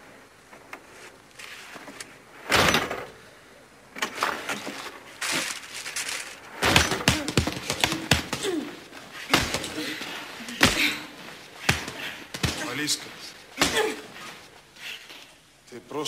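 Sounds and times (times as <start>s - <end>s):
small knocks and thuds: 4.0s - 14.5s.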